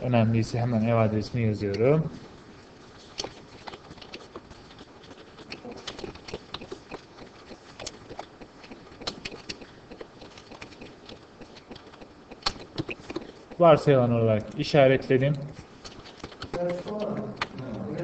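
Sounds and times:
computer keyboard typing: 5.1s - 13.7s.

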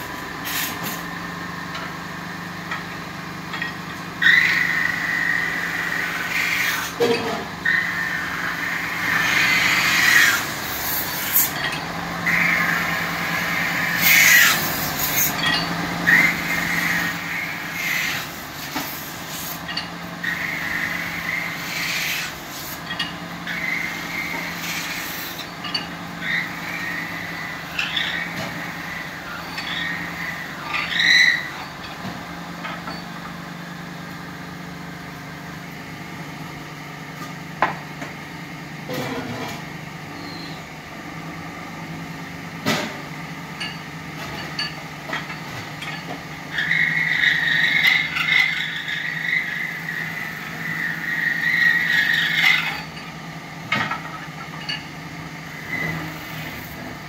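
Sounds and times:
lathe motor hum: 1.1s - 31.8s
tool scraping squeals on metal: 4.2s - 32.0s, 32.6s - 33.3s, 40.1s - 40.7s, 45.4s - 53.0s, 55.5s - 56.9s.

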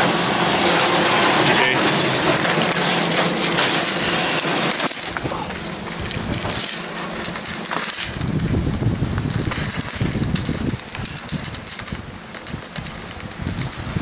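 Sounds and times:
thin high squeal: 2.8s - 8.7s.

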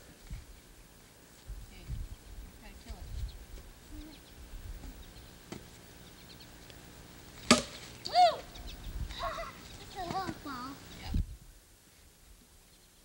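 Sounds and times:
bat hitting a ball: 7.4s - 7.8s.

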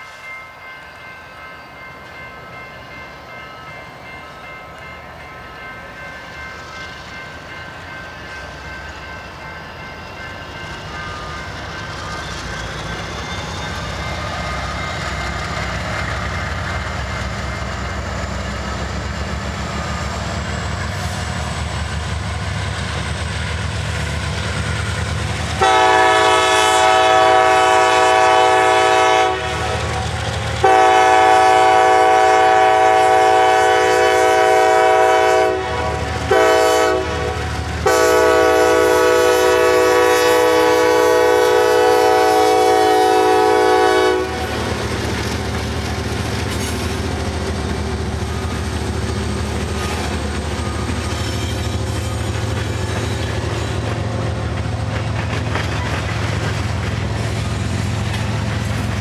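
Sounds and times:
freight train rumbling: 0.0s - 59.0s
locomotive air horn: 25.6s - 29.9s, 30.6s - 44.6s.

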